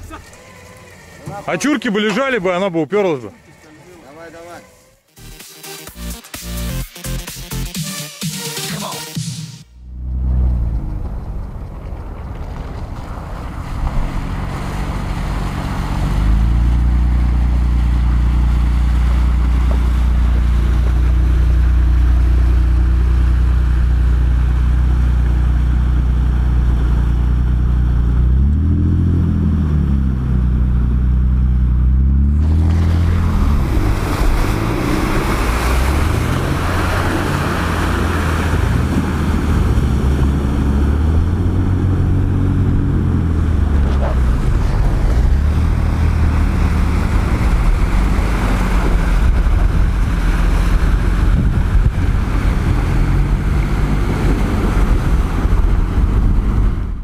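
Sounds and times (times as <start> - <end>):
suv engine revving: 9.7 - 57.0
splashing water: 11.4 - 27.1, 32.4 - 56.3
wind on microphone: 33.1 - 57.0.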